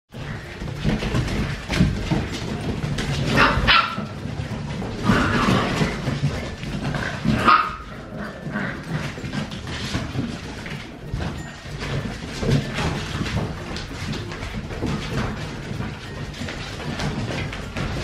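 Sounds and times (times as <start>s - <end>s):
dogs barking and yipping: 0.2s - 14.0s.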